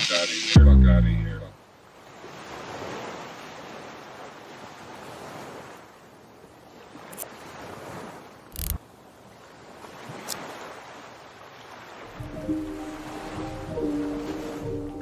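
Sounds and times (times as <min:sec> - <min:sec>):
ocean surf on sandy beach: 0:01.6 - 0:15.0.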